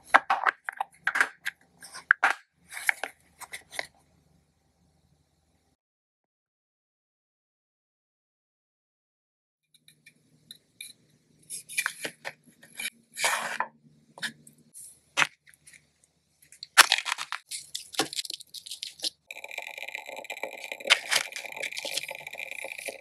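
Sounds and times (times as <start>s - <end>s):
plastic wrapper crinkling: 16.5s - 19.2s.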